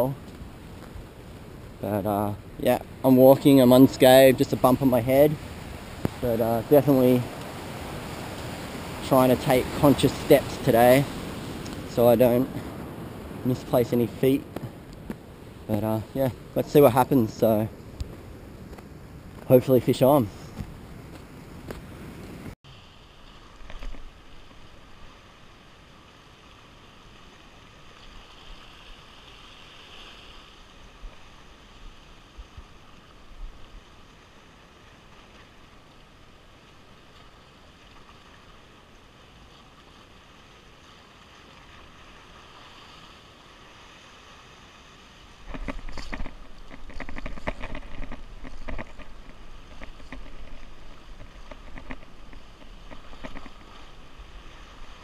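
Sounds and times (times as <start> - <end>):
wind rumbling on microphone: 0.0 - 22.6, 43.6 - 55.0
sea washing against rocks: 0.0 - 25.9, 36.7 - 55.0.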